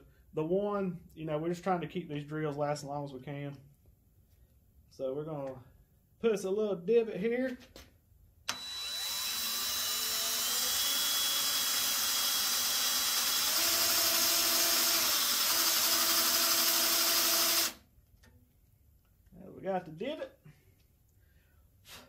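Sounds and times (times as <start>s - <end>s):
drill cutting into steel: 8.5s - 17.8s.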